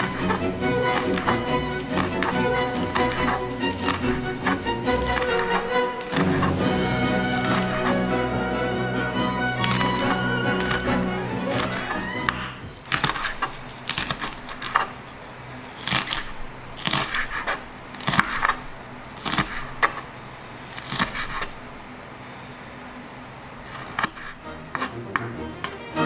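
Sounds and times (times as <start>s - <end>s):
knife slicing on cutting board: 0.0s - 8.3s, 9.5s - 14.9s, 19.2s - 20.0s, 20.7s - 21.6s, 23.7s - 25.8s.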